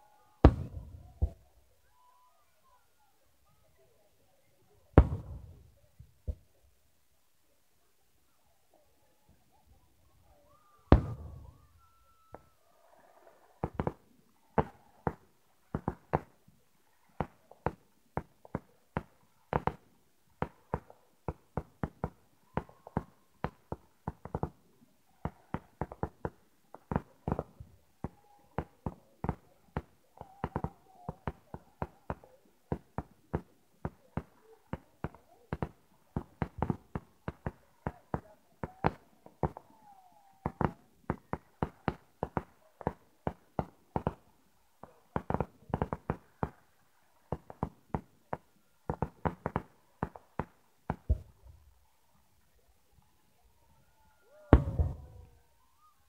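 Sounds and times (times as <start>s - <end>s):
fireworks bangs: 0.4s - 1.4s, 5.0s - 5.7s, 10.9s - 11.7s, 54.5s - 55.2s.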